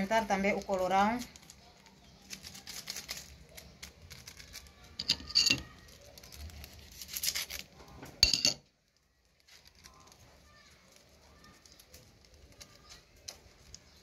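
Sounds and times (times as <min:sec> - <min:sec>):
plastic sachet crinkling: 0:00.0 - 0:08.0, 0:08.6 - 0:14.0
knife cutting plastic: 0:00.5 - 0:08.2.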